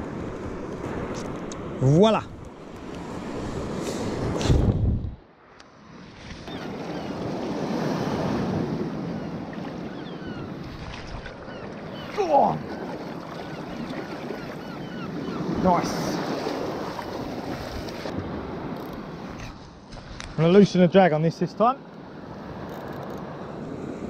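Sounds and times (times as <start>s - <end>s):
wind on microphone: 3.0s - 5.2s.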